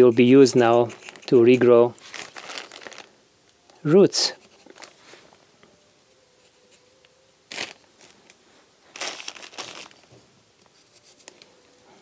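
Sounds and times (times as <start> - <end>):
hands crinkling rustles: 2.0 - 3.8, 4.6 - 5.4, 7.5 - 11.5.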